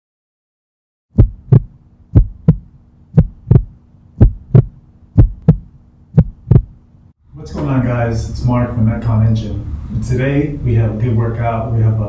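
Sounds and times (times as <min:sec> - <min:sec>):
deep heartbeat: 0:01.1 - 0:06.8
faint steady hum: 0:01.2 - 0:12.0.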